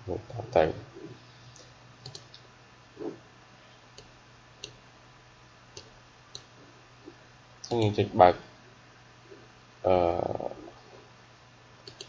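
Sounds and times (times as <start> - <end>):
faint low hum: 0.0 - 12.0
computer mouse clicking: 1.6 - 2.4.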